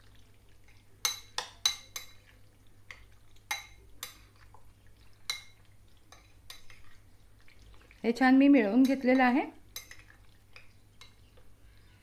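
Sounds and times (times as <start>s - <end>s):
metal spoon clinking glass bowl: 1.0s - 2.2s, 3.5s - 4.2s.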